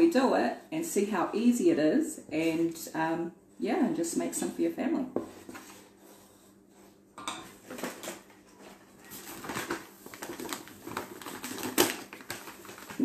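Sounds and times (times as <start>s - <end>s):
paper bag rustling: 7.6s - 13.0s.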